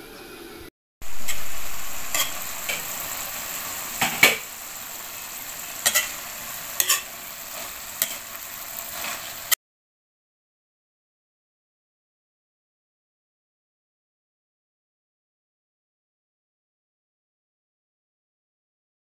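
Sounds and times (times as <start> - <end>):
food sizzling in a wok: 0.2 - 9.6
spatula scraping and clacking pan: 1.2 - 1.5, 2.1 - 4.6, 5.3 - 9.6.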